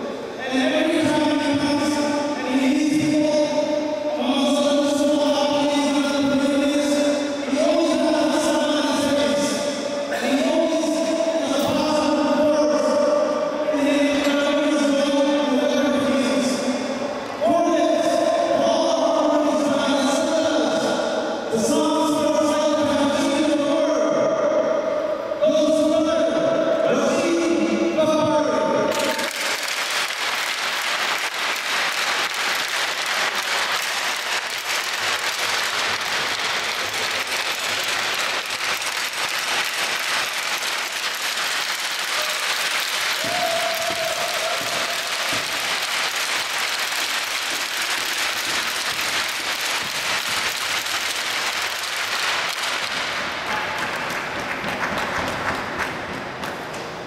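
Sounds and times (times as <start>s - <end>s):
audience applauding: 28.9s - 56.7s.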